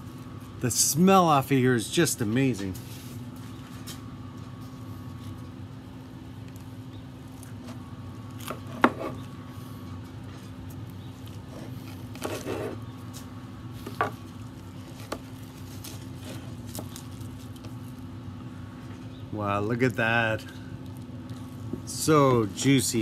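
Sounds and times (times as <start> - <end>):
steady low hum: 0.0 - 23.0
knife cutting through meat: 11.4 - 12.8.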